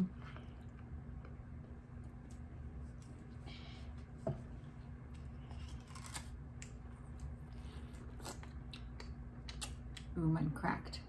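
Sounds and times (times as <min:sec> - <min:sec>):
ice popsicle crunching: 0:05.4 - 0:07.3.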